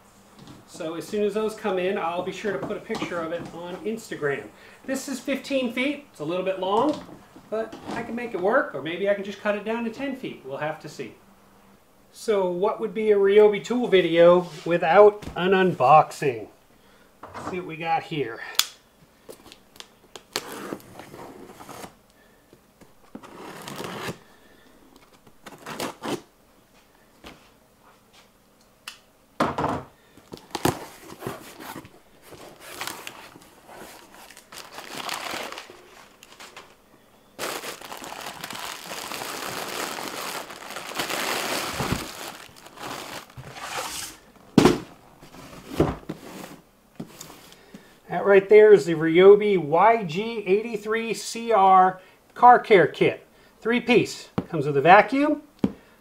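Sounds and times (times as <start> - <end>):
paper and plastic crinkling: 30.2 - 36.8, 37.4 - 44.1.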